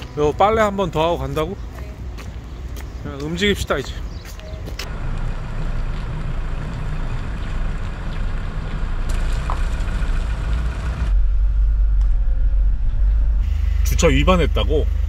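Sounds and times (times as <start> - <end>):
engine rumble inside cab: 4.1 - 15.0
motorhome engine driving past: 4.5 - 15.0.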